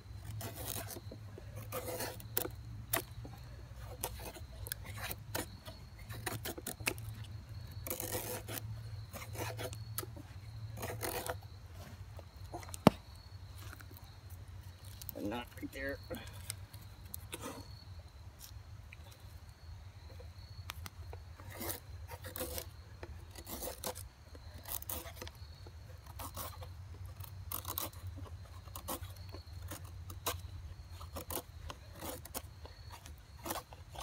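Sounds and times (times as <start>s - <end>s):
knife shaving a wooden stick: 0.0s - 13.0s, 21.1s - 34.0s.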